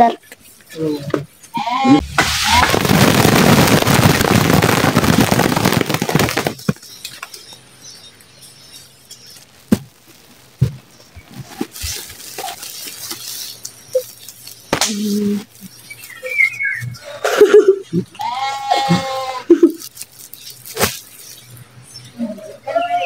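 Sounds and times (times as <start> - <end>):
berries pattering onto cloth: 3.6 - 7.6, 9.2 - 16.3, 19.6 - 21.6.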